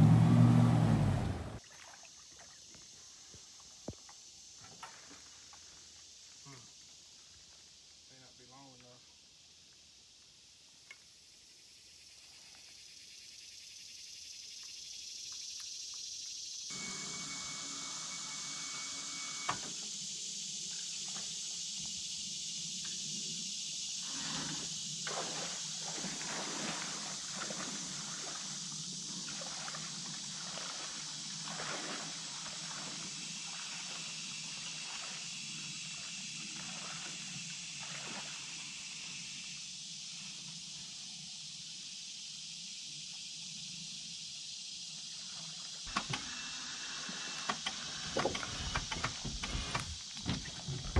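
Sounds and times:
steady high hiss: 5.2 - 25.9, 32.2 - 50.4
wading through shallow water: 25.1 - 38.6.

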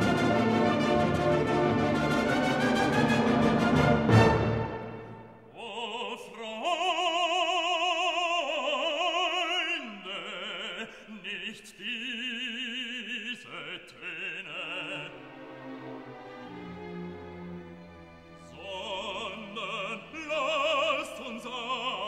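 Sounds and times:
operatic voice singing: 5.5 - 15.5, 18.4 - 22.0.

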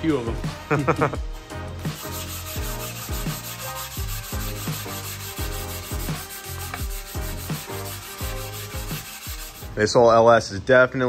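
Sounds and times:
bass-heavy music with low thumps: 0.0 - 9.9
abrasive pad scrubbing metal: 1.8 - 9.9.

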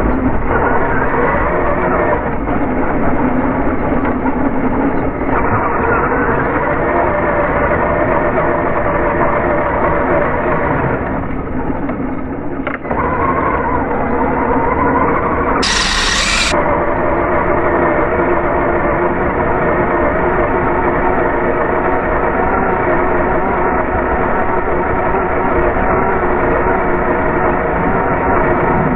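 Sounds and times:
remote-control car motor running: 15.6 - 16.6
short burst of hiss: 15.6 - 16.6.

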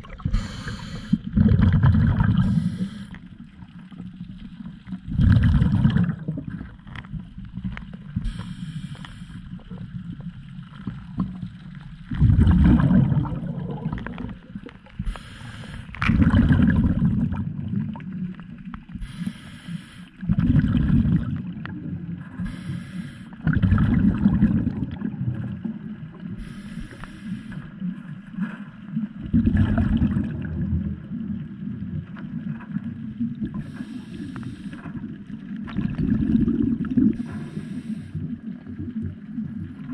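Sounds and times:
gurgling exhaust bubbles: 0.0 - 2.9, 4.8 - 8.2, 9.6 - 14.7, 15.9 - 18.3, 20.2 - 22.3, 23.4 - 26.3, 29.1 - 33.8, 34.9 - 37.5
regulator hissing inhalations: 0.3 - 1.3, 2.4 - 3.2, 8.2 - 9.4, 15.0 - 15.9, 19.0 - 20.2, 22.4 - 23.4, 26.4 - 27.6, 33.6 - 34.8, 37.2 - 38.2.

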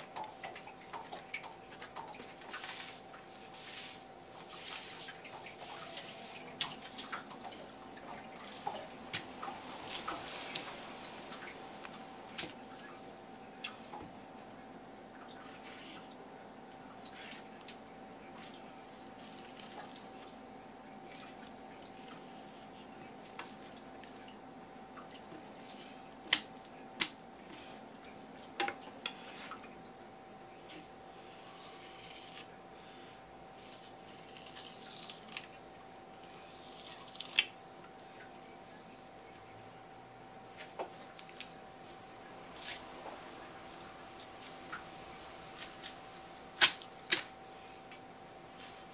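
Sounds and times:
knife slicing and scraping fish: 30.6 - 32.5.

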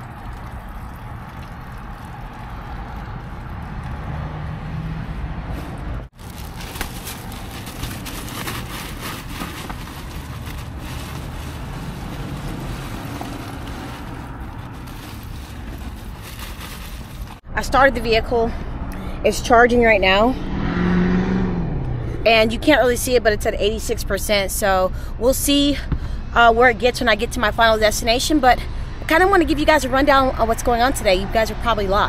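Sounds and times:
bag of ice rustling: 6.1 - 17.4
car engine idling: 6.1 - 17.4.

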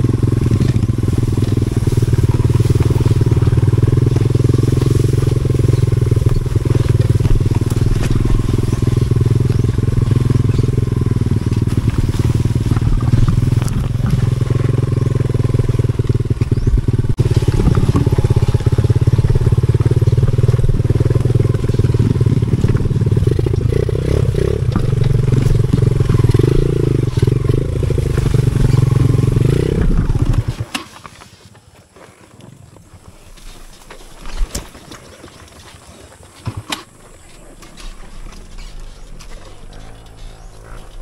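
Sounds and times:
dirt bike engine running: 0.0 - 31.0, 33.0 - 41.0
faint engine: 0.0 - 31.2, 32.7 - 41.0.

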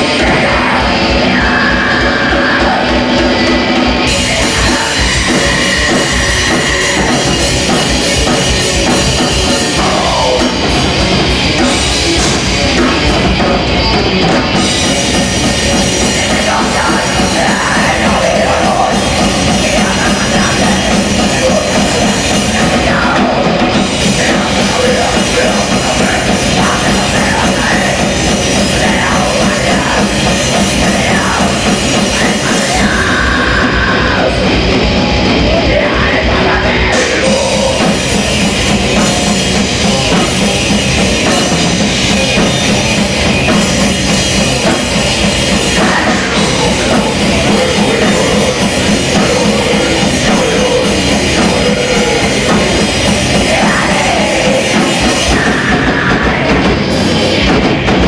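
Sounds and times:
band playing heavy rock: 0.0 - 58.0
drum kit beat: 0.0 - 58.0.

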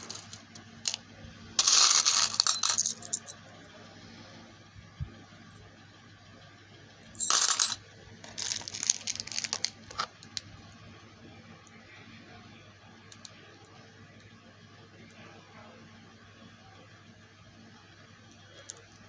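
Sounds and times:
metal charms clattering: 0.0 - 1.0, 1.6 - 3.3, 7.2 - 10.2.

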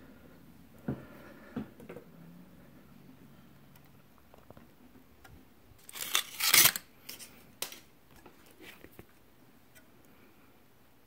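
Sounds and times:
aluminium foil crinkling: 5.8 - 7.8.

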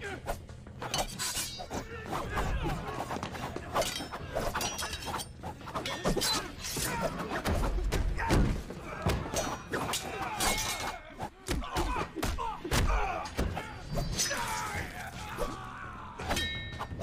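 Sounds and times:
metallic clanks and rings: 0.9 - 1.8, 3.8 - 6.8, 16.3 - 17.0.

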